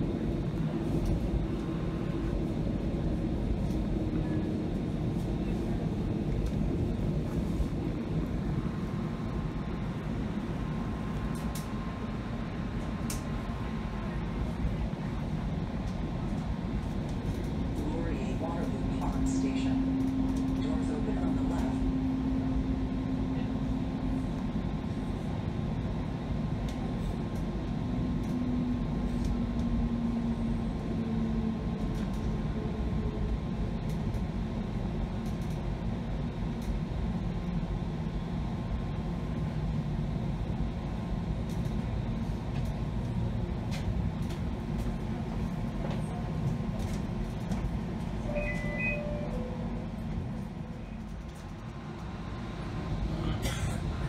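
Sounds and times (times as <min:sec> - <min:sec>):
train rumble: 0:00.0 - 0:54.0
short electronic beep: 0:48.3 - 0:49.5.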